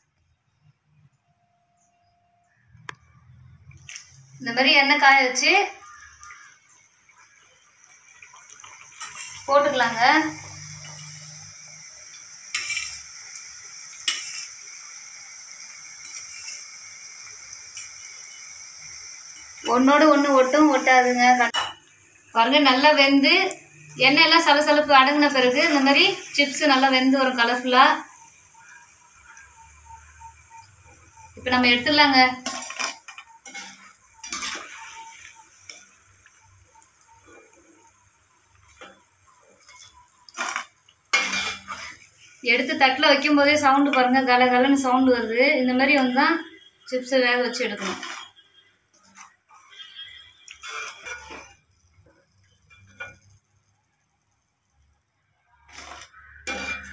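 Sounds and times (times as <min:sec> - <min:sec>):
oil sizzling: 0:02.5 - 0:56.9
metal knife scraping ladle: 0:12.5 - 0:13.0, 0:14.0 - 0:14.5, 0:32.4 - 0:35.2, 0:39.7 - 0:42.1, 0:47.7 - 0:51.6
fried chips clattering: 0:32.4 - 0:35.8, 0:39.7 - 0:42.0, 0:47.6 - 0:48.4.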